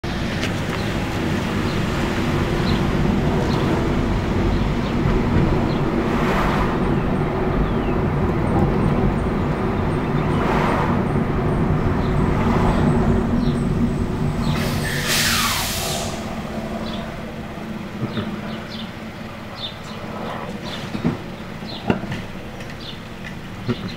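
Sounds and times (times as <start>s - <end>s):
garbage truck diesel engine: 0.0s - 23.9s
air brakes hissing: 14.4s - 17.1s.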